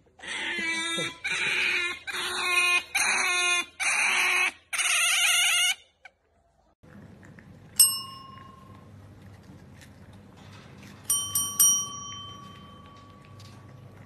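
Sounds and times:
service call bell ringing: 0:07.8 - 0:08.7, 0:11.1 - 0:13.5.

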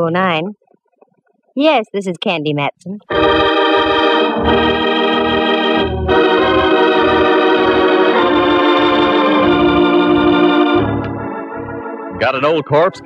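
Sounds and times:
organ playing chords: 0:03.1 - 0:13.0.

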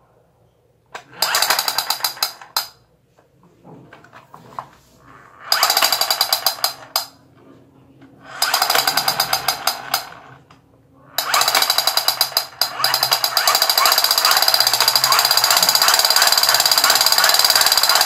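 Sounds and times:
toy machine-gun sound effect: 0:01.0 - 0:02.8, 0:05.4 - 0:07.1, 0:08.2 - 0:10.3, 0:11.2 - 0:18.0.

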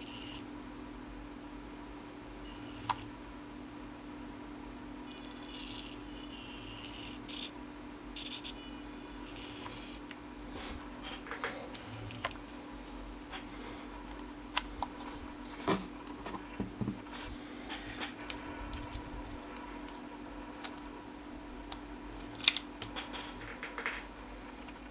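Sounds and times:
electric gear motors whirring: 0:00.0 - 0:00.4, 0:02.4 - 0:03.1, 0:05.1 - 0:07.5, 0:08.2 - 0:10.0, 0:11.7 - 0:12.4.

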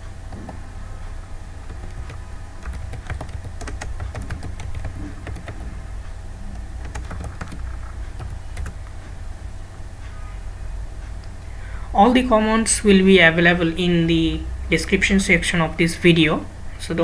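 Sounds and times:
low hum: 0:00.0 - 0:17.0
keyboard keys clicking: 0:01.7 - 0:05.8, 0:06.8 - 0:08.8.

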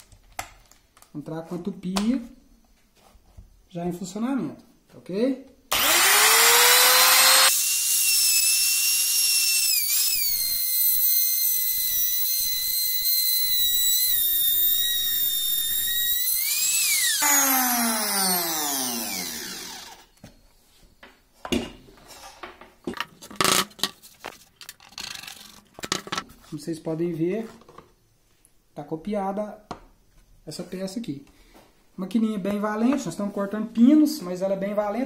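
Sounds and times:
router whining: 0:05.7 - 0:20.2.

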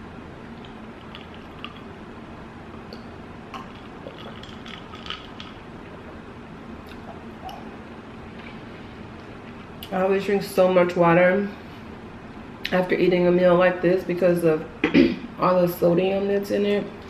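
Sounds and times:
low background hum: 0:00.0 - 0:17.0
wet mouth eating sounds: 0:00.6 - 0:01.9, 0:02.8 - 0:06.2, 0:06.8 - 0:08.6.

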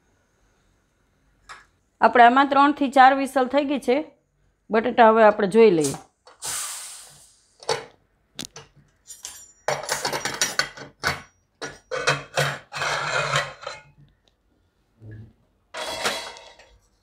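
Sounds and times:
pressure cooker steam hissing: 0:06.3 - 0:07.5
metal lid clinks and scraping: 0:09.1 - 0:14.0, 0:15.8 - 0:17.0.

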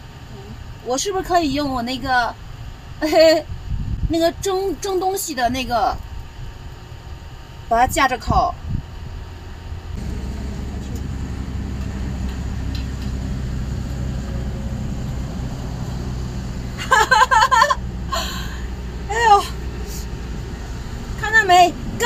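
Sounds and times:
low mechanical rumble: 0:00.0 - 0:22.0
woman laughing: 0:16.8 - 0:18.6.

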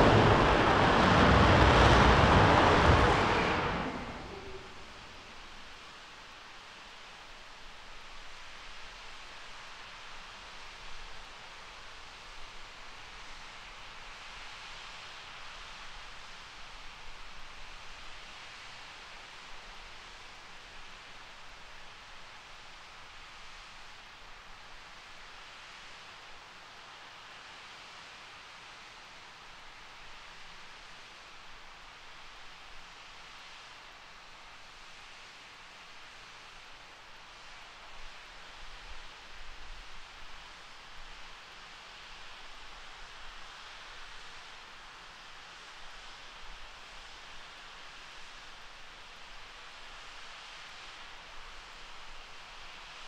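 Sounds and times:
distant rocket engine hiss: 0:00.0 - 0:06.0
hiss of water spray and steam: 0:00.0 - 0:53.0.

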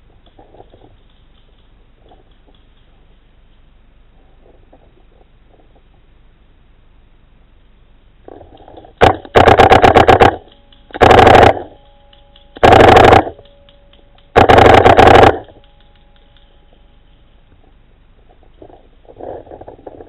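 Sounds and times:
paintball marker firing: 0:09.0 - 0:11.8, 0:12.6 - 0:13.6, 0:14.2 - 0:15.7.

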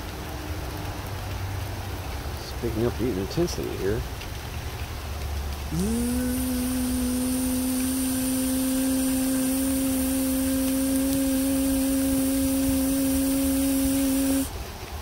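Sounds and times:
steady low tone: 0:05.7 - 0:14.5.

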